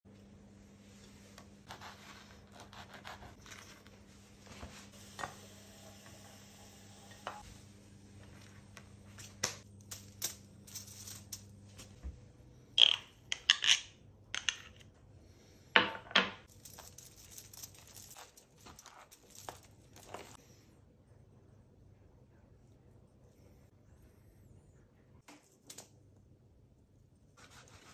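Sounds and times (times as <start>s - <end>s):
foil and paper rustling: 16.5s - 20.4s
faint low hum: 16.5s - 27.9s.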